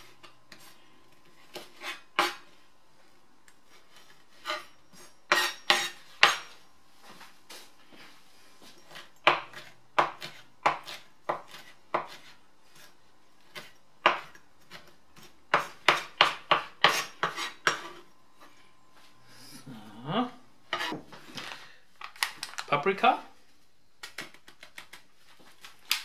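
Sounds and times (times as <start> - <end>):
knife chopping on cutting board: 5.3 - 6.5, 8.9 - 12.9, 13.5 - 18.0.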